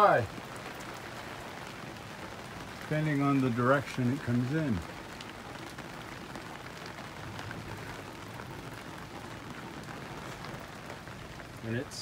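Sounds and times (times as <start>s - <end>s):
heavy rain on canvas: 0.0s - 12.0s.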